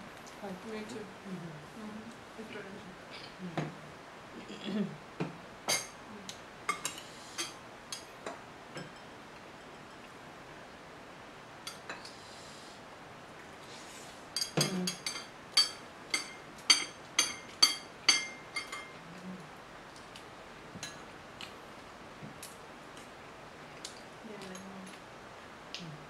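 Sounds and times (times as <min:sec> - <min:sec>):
spoon clinking against a bowl: 0:14.4 - 0:19.0.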